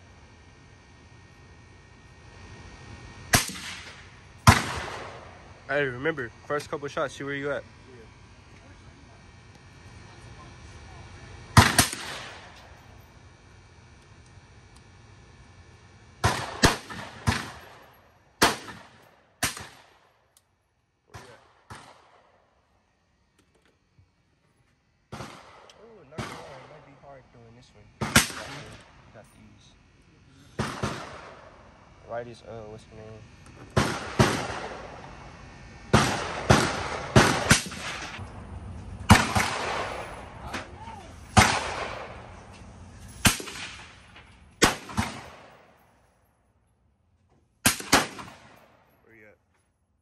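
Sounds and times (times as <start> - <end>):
rifle shots cracking: 3.3 - 5.3, 11.6 - 12.7, 16.2 - 17.8, 18.4 - 20.0, 21.1 - 22.4, 25.1 - 27.0, 28.0 - 29.0, 30.6 - 31.7, 33.6 - 35.1, 35.9 - 38.2, 39.0 - 40.3, 41.3 - 42.4, 43.2 - 45.6, 47.6 - 48.8
faint gunshots: 3.3 - 5.4, 11.5 - 12.7, 16.2 - 17.8, 18.4 - 20.0, 21.1 - 22.4, 25.1 - 29.0, 30.5 - 32.4, 33.6 - 35.1, 35.9 - 38.2, 39.0 - 42.4, 43.2 - 45.7, 47.6 - 48.9.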